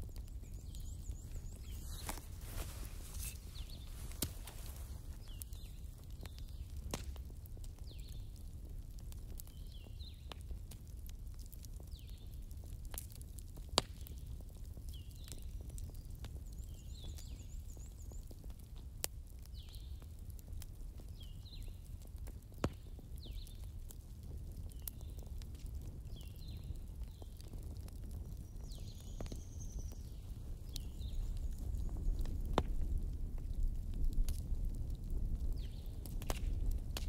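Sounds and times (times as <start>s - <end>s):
bird chirping: 0.0s - 4.6s
campfire crackling: 0.0s - 37.0s
fire pops: 0.0s - 37.0s.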